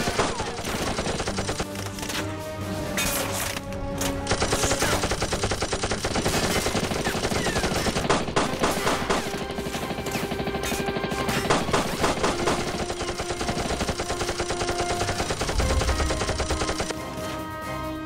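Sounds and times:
rapid machine-gun fire: 0.0 - 1.7, 4.3 - 16.9.

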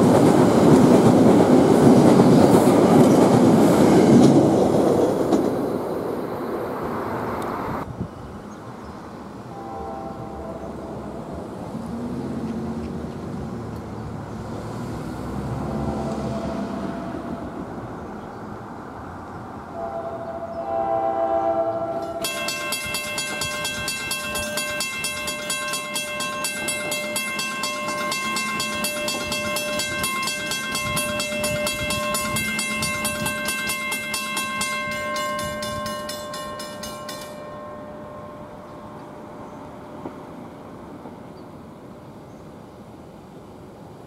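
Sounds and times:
train air horn: 9.5 - 11.3, 15.6 - 17.9, 19.7 - 22.7
railroad crossing bell ringing: 9.5 - 11.5, 15.4 - 18.1, 19.8 - 41.4.

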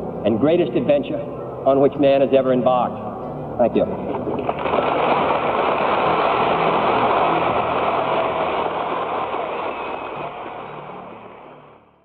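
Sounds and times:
large audience applauding: 4.1 - 11.8.

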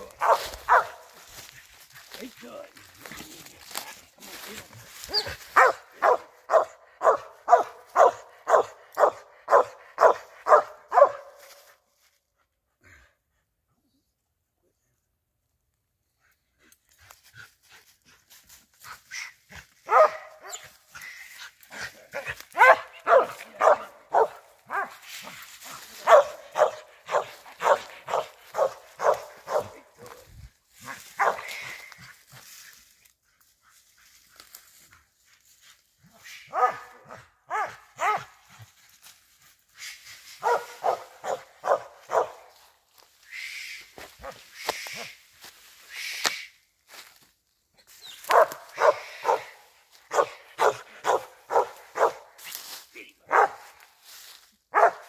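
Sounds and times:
dog barking: 0.1 - 1.1, 5.1 - 11.4, 19.8 - 20.7, 22.2 - 25.1, 25.7 - 30.3, 30.9 - 31.6, 36.5 - 38.5, 40.4 - 42.5, 48.3 - 52.3, 53.3 - 53.7, 54.7 - 55.0.

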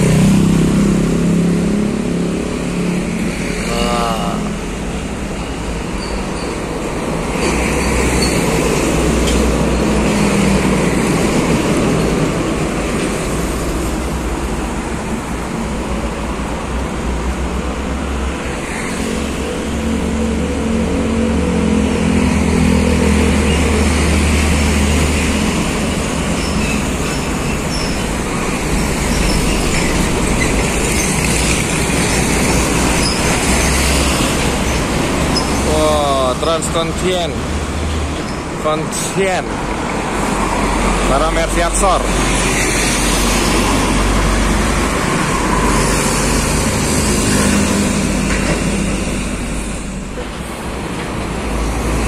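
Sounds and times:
motorcycles passing: 0.0 - 5.9, 16.5 - 52.0
diesel trucks passing: 0.0 - 52.0.

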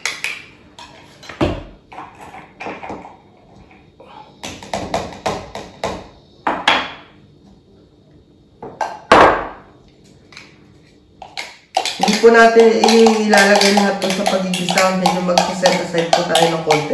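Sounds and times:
spoon scraping plastic cup: 11.2 - 16.9.

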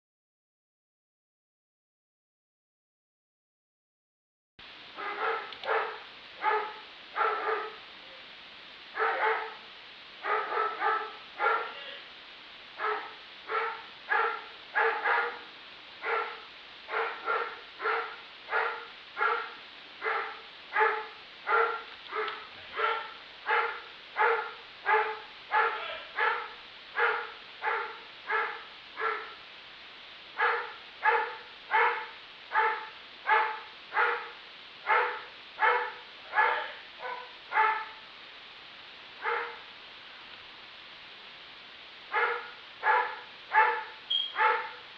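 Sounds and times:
dog barking: 5.0 - 7.8, 8.9 - 12.0, 12.8 - 29.4, 30.4 - 38.0, 39.2 - 39.7, 42.1 - 44.9.

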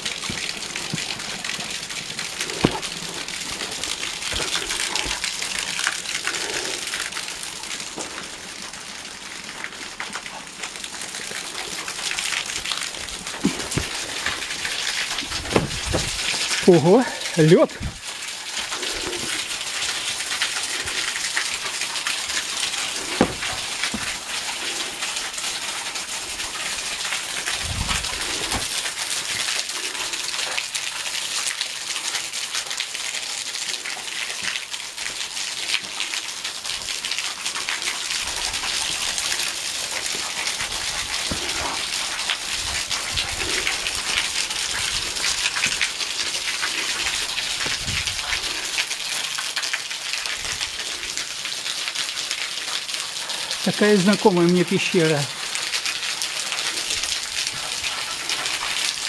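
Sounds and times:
water dripping: 0.0 - 59.0
water splashing on rock: 2.3 - 5.3, 12.5 - 16.7, 20.7 - 24.7, 27.6 - 29.1
low thumps: 15.3 - 16.3.

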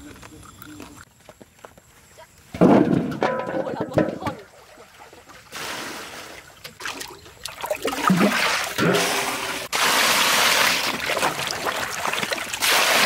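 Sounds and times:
metal bowl knocking: 3.1 - 4.4
water splashing into metal basin: 6.6 - 13.0.

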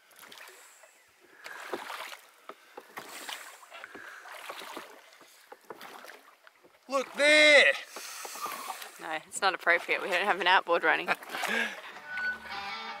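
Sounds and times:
oars splashing water: 0.0 - 12.6
light clicks and knocks: 3.8 - 6.8.

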